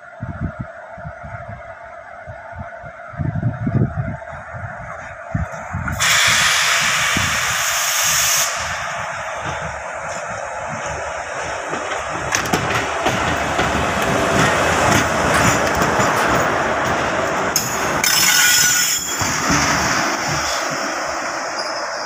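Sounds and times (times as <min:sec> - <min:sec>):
locomotive wheels on rails: 0:00.0 - 0:22.0
air hiss: 0:05.9 - 0:09.3.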